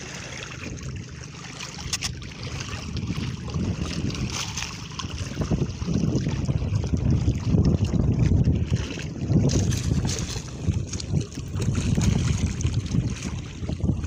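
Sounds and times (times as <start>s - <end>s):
water sloshing against boat hull: 0.0s - 14.0s
wind buffeting microphone: 0.0s - 14.0s.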